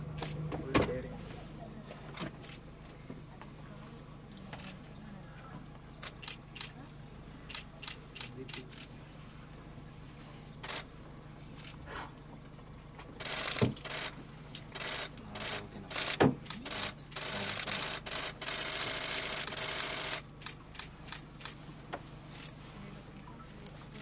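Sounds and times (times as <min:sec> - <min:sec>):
low steady hum: 0:00.0 - 0:24.0
camera shutters clicking: 0:06.0 - 0:06.8, 0:13.2 - 0:21.6.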